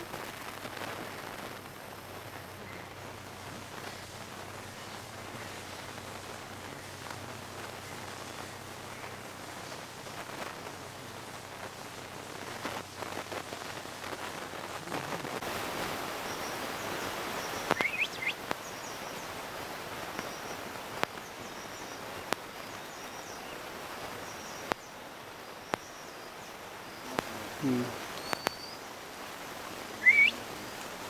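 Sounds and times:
outdoor hiss and rustle: 0.0s - 31.0s
short high bird chirps: 17.7s - 18.4s, 28.2s - 28.8s, 30.0s - 30.4s.

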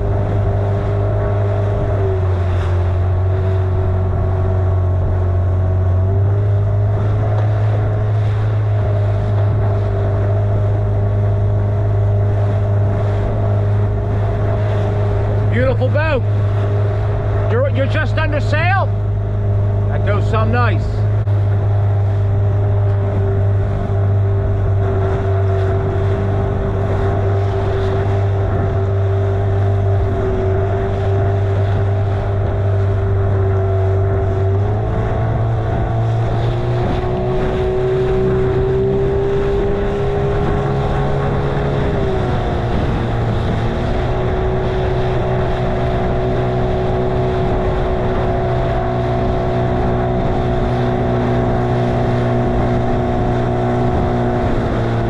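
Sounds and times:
outboard motor running: 0.0s - 55.0s.

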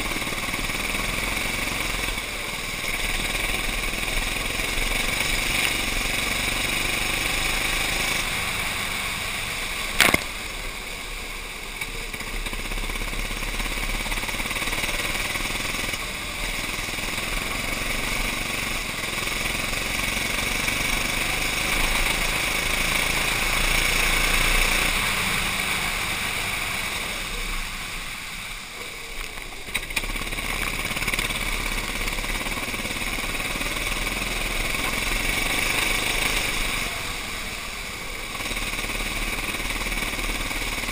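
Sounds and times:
go-kart engine revving: 0.0s - 40.9s
sharp knock: 10.0s - 10.4s.

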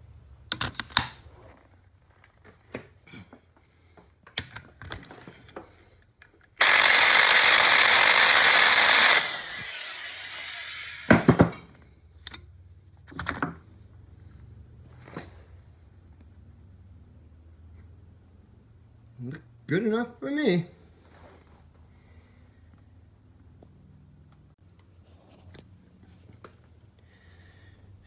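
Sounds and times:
metallic clicks and knocks: 0.5s - 1.2s
electric grinder spinning on metal: 6.6s - 11.4s.

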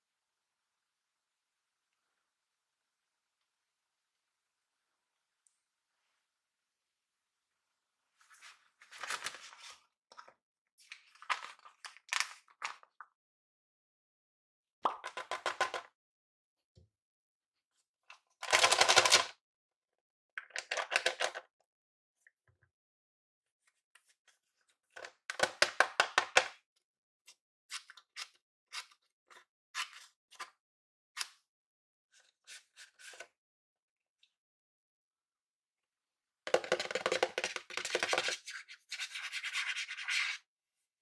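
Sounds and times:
paper crinkling and rustling: 8.2s - 10.3s, 10.9s - 12.9s.

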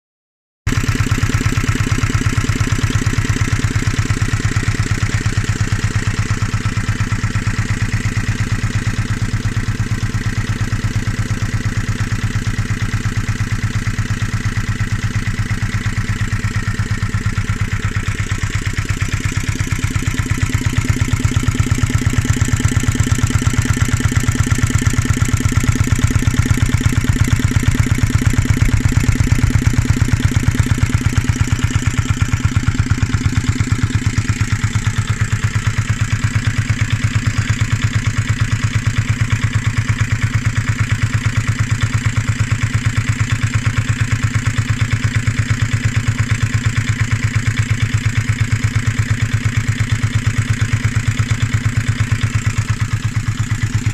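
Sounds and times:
diesel engine running: 0.7s - 53.9s.

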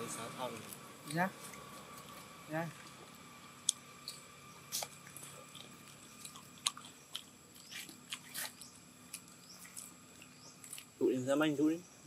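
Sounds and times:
monkey chewing food crunches: 1.4s - 11.0s.

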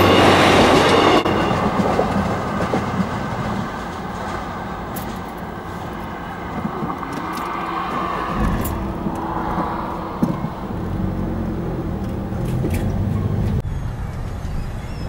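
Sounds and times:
lorry diesel engine rumble: 3.4s - 15.0s.

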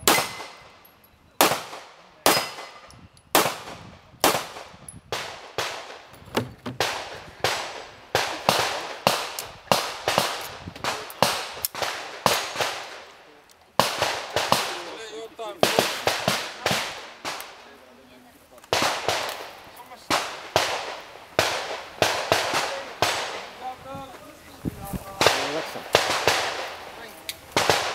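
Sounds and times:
handgun shots with echo: 0.0s - 0.6s, 1.4s - 6.0s.

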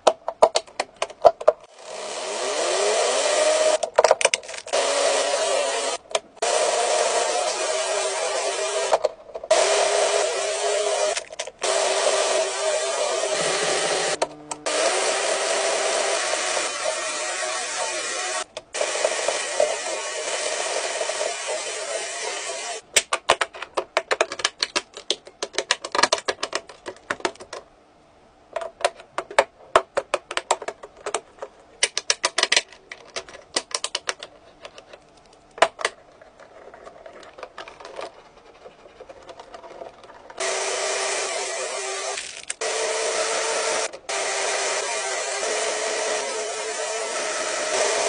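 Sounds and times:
plastic pieces clicking together: 0.0s - 1.7s, 3.8s - 4.8s, 22.9s - 27.6s, 28.6s - 38.2s, 42.2s - 42.6s
toy motor whirring hum: 1.7s - 3.9s, 4.6s - 22.8s, 40.4s - 48.0s.

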